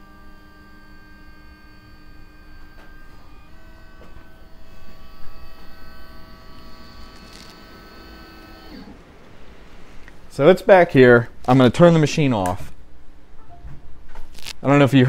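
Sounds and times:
stepper motors whining: 0.0 - 10.2.

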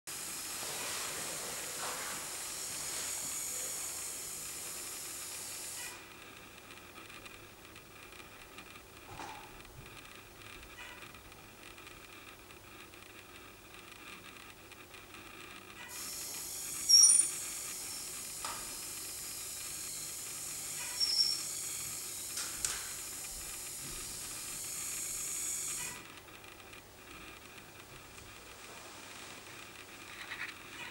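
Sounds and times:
short high squeaks: 16.8 - 18.1, 20.8 - 22.3.

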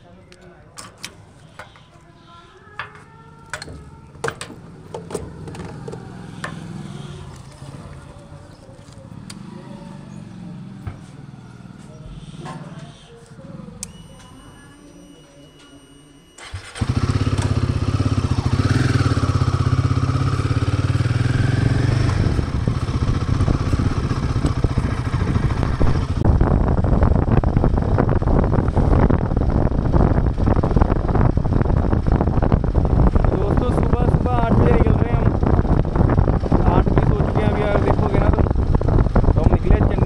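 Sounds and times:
motorcycle engine starting and idling: 0.3 - 14.4, 16.4 - 40.0
faint steady high tones: 12.3 - 16.7.

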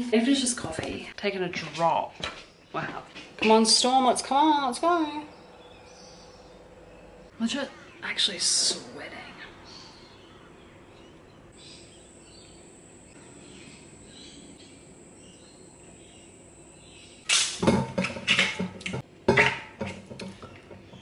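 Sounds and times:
faint high whine: 11.6 - 17.4
handling knocks and rustling: 17.6 - 21.0.

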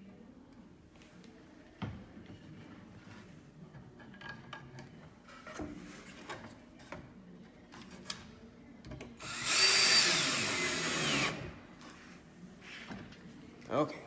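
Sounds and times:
cordless drill driving screw: 9.2 - 11.5.

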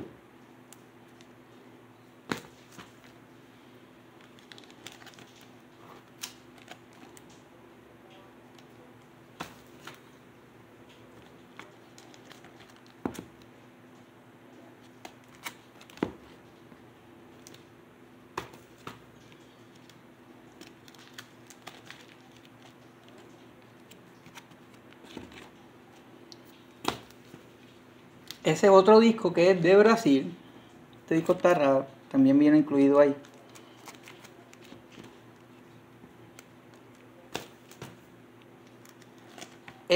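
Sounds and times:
faint steady hum: 0.0 - 39.9
plastic sleeves crinkling: 4.0 - 7.5, 10.8 - 13.5, 14.6 - 17.7, 18.4 - 28.6, 32.7 - 39.9.

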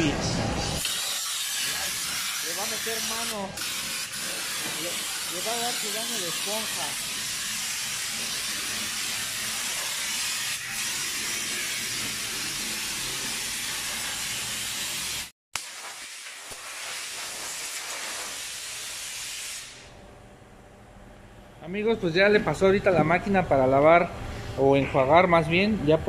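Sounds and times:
pressure wash spray hissing: 0.8 - 19.9.

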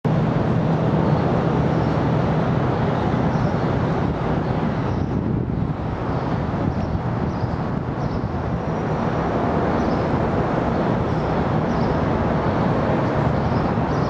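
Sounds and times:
city traffic noise: 0.0 - 14.0.

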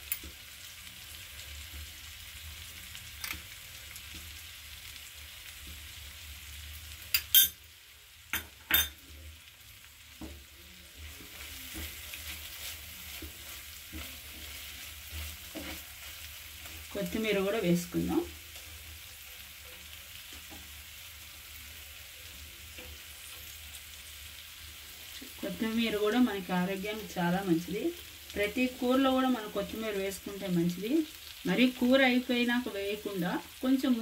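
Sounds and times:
curry sizzling in a frying pan: 0.0 - 34.0
spatula stirring curry: 10.0 - 17.0.

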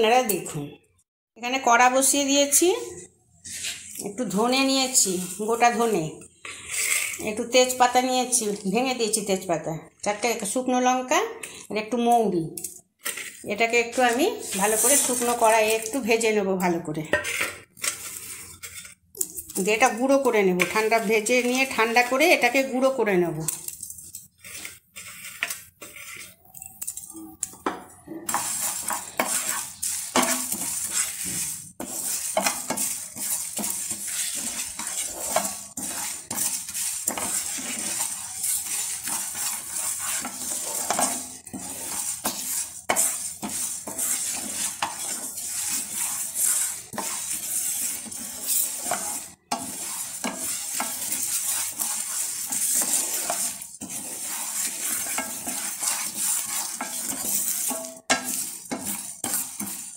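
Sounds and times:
spatula scraping a pan: 2.0 - 59.9
seeds rattling in a pan: 13.0 - 16.1, 17.3 - 27.5, 28.3 - 59.9.

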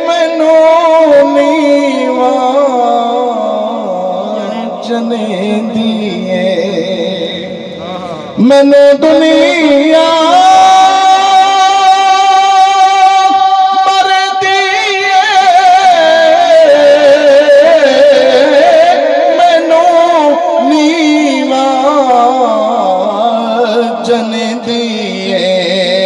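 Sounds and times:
man singing devotional verse: 0.0 - 26.0.

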